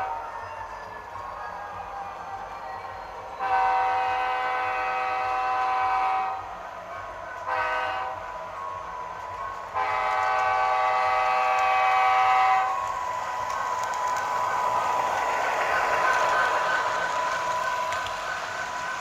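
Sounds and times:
model train diesel horn: 0:03.4 - 0:06.5, 0:07.4 - 0:08.3, 0:09.7 - 0:12.9.

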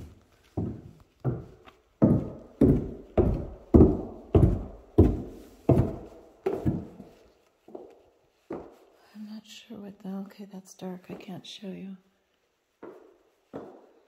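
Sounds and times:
footsteps on carpeted stairs: 0:00.0 - 0:08.9, 0:12.8 - 0:14.0.

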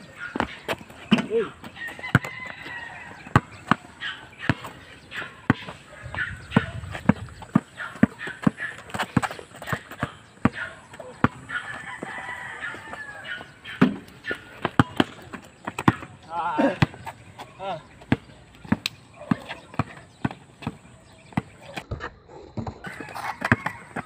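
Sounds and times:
basketball bouncing on concrete: 0:00.3 - 0:24.0
rooster crowing: 0:01.8 - 0:03.4, 0:11.5 - 0:13.6, 0:22.8 - 0:24.0.

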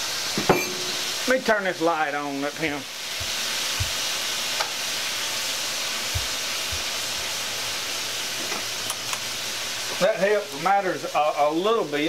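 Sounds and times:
food sizzling on a griddle: 0:00.0 - 0:12.0
soft low thumps: 0:03.2 - 0:04.0, 0:06.1 - 0:06.9.

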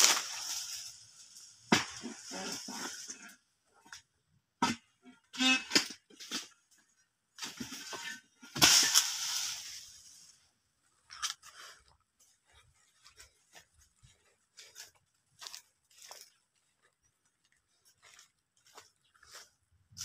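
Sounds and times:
pole sickle cutting palm: 0:00.0 - 0:00.9, 0:08.6 - 0:09.9
cut growth crashing to ground: 0:08.6 - 0:09.8.

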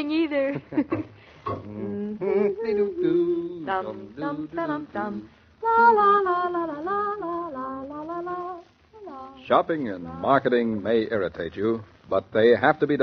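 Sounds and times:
woman singing wordless tune: 0:01.9 - 0:10.4.

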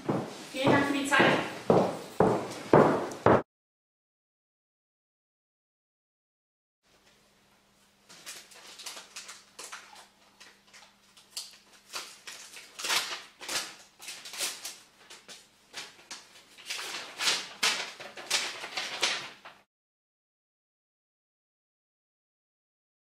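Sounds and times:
paper rustling and crinkling: 0:08.0 - 0:19.7.

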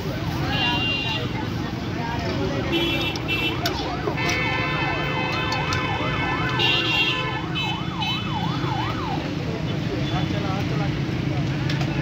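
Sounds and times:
street noise: 0:00.0 - 0:12.0
siren wailing up and down: 0:07.3 - 0:09.3.

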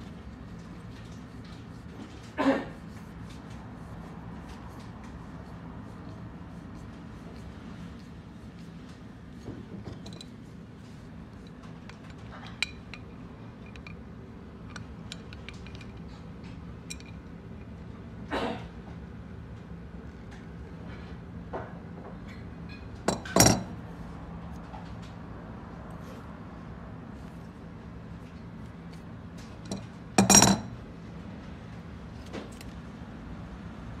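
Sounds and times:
metal parts clicking and clinking: 0:10.0 - 0:10.3, 0:11.4 - 0:14.0, 0:14.6 - 0:16.1, 0:16.8 - 0:17.3, 0:23.1 - 0:23.8, 0:29.6 - 0:30.8
metal faucet parts clinking: 0:23.1 - 0:23.7, 0:29.7 - 0:30.8.

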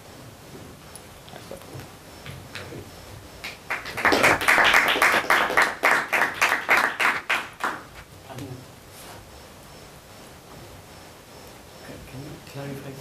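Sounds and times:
audience applause: 0:03.4 - 0:07.9.

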